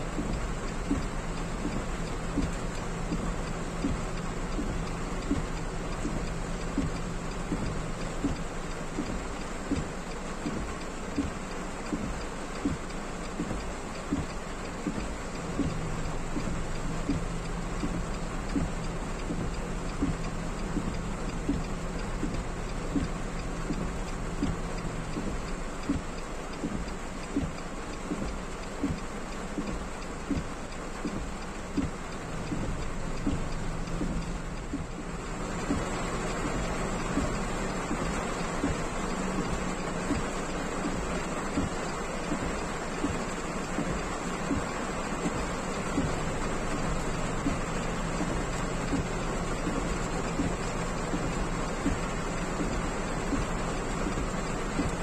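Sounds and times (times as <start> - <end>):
heavy rain on car: 0.0 - 55.0.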